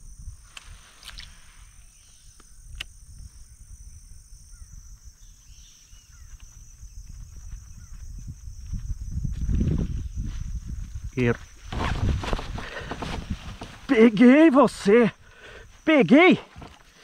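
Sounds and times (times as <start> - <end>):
high insect drone: 0.0 - 17.0
faint bird chirps: 1.1 - 8.3
sharp clicks: 2.3 - 3.0.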